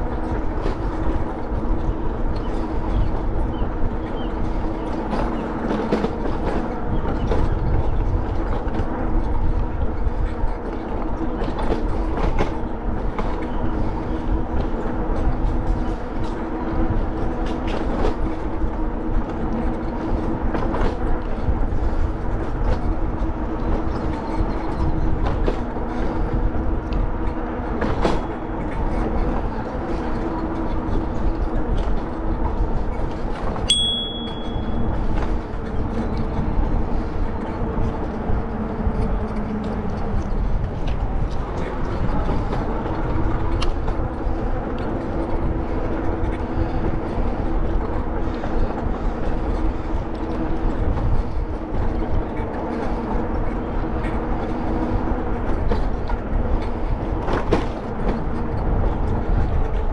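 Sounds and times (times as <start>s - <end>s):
bicycle tyres and wind rumble: 0.0s - 59.9s
short high beep: 33.7s - 34.9s.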